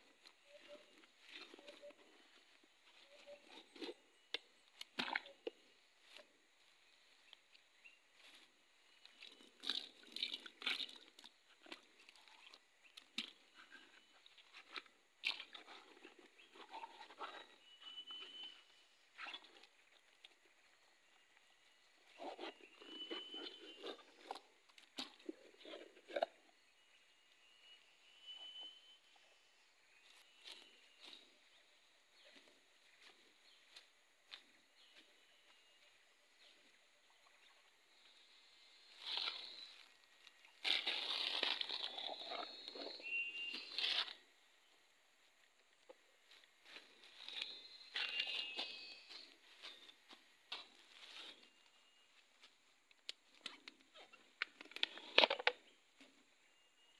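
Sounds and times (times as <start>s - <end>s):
tin cup scraping and crinkling: 40.6s - 44.2s.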